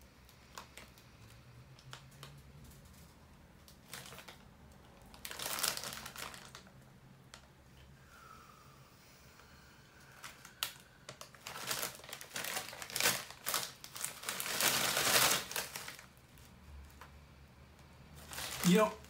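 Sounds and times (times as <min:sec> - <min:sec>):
plastic chip bag crinkling: 0:03.7 - 0:06.7, 0:10.2 - 0:17.0, 0:18.2 - 0:19.0.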